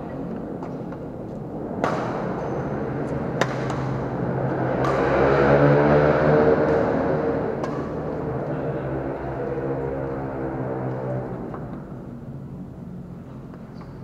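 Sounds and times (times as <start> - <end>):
low droning hum: 0.0 - 13.6.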